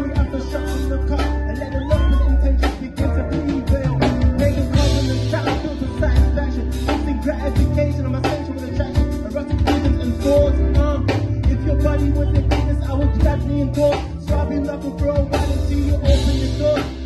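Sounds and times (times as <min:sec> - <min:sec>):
bass notes: 0:00.0 - 0:17.0
guitar: 0:00.0 - 0:17.0
live band music: 0:00.0 - 0:17.0
person singing into microphone: 0:00.0 - 0:17.0
drum kit hits: 0:02.7 - 0:17.0.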